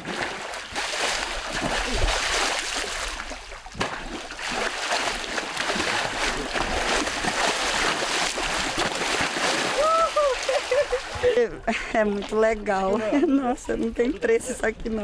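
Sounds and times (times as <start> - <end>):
fish splashing in water: 0.0 - 11.4.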